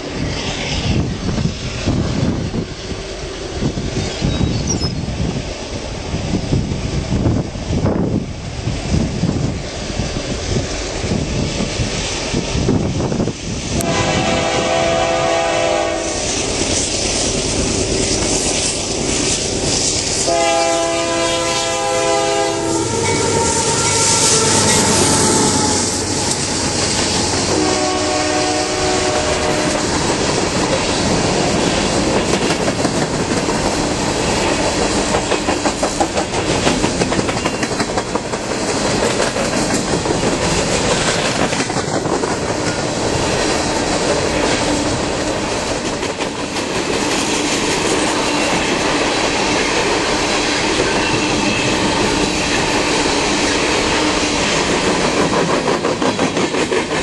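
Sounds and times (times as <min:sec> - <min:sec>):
train wheels rumbling: 0:00.0 - 0:57.0
locomotive air horn chord: 0:13.8 - 0:16.3, 0:20.2 - 0:26.4, 0:27.5 - 0:29.9
wheels clacking over rail joints: 0:29.5 - 0:53.1.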